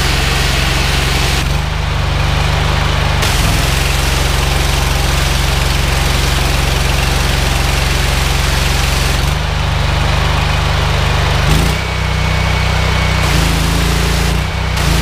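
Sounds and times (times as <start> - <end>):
high-pressure water jet hiss: 0.0 - 1.6, 3.2 - 9.3, 13.2 - 15.0
engine running: 0.0 - 15.0.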